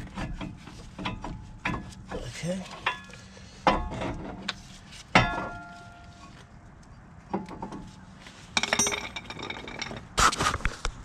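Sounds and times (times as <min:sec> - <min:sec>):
rattle of metal clinks: 0:08.6 - 0:10.0
metal tools clanking: 0:08.6 - 0:10.1.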